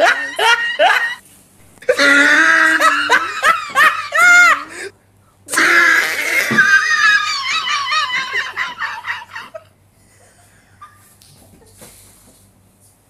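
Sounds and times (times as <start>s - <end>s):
women laughing loudly: 0.0s - 1.2s, 1.9s - 4.9s, 5.5s - 9.7s.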